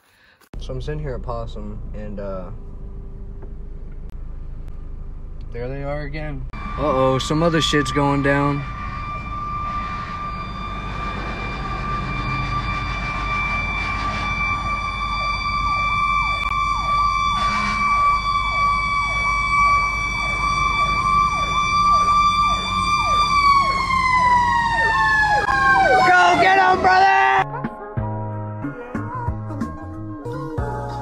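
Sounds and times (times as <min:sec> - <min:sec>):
emergency vehicle siren passing: 0:06.5 - 0:31.0.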